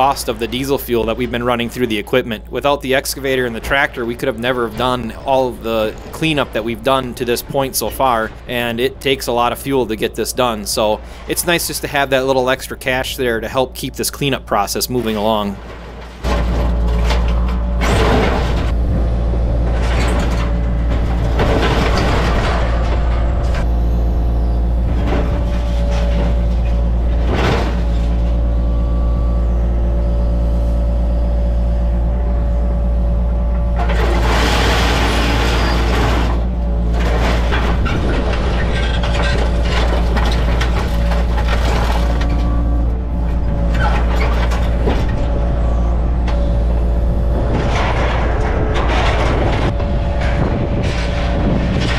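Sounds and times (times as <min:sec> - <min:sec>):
excavator diesel engine running: 0:00.0 - 0:51.9
bucket crushing sheet metal scrap: 0:33.8 - 0:42.5.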